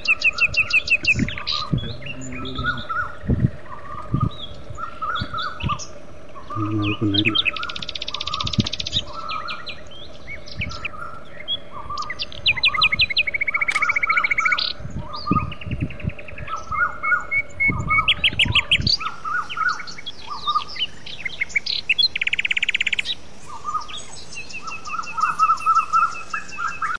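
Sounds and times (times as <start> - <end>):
low steady hum: 0.0 - 19.0
birds chirping and trilling: 0.0 - 26.9.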